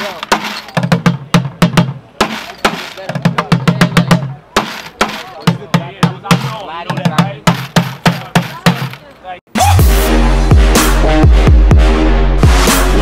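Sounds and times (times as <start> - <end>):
hollow thuds from bucket tops: 0.0 - 9.0.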